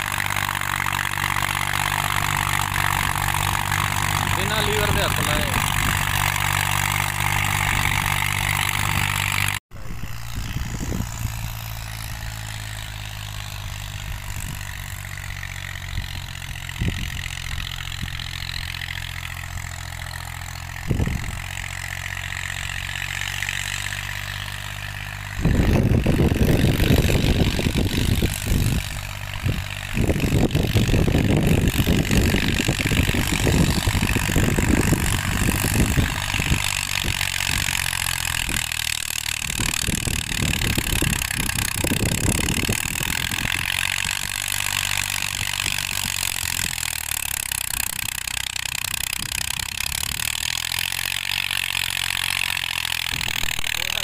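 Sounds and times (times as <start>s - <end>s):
rough low rumble: 0.0s - 23.2s, 23.9s - 38.7s
tractor diesel engine running: 0.0s - 54.0s.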